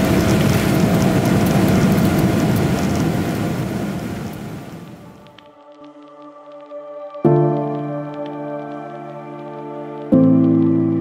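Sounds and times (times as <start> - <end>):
wheels rolling on runway: 0.0 - 5.0
jet engines rumbling: 0.0 - 5.5.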